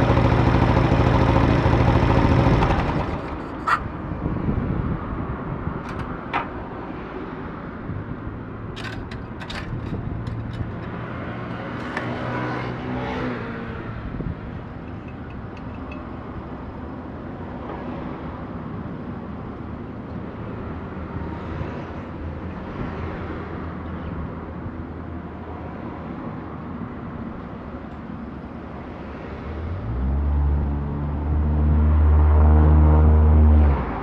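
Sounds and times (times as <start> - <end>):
motorcycle engine idling: 0.0 - 3.3.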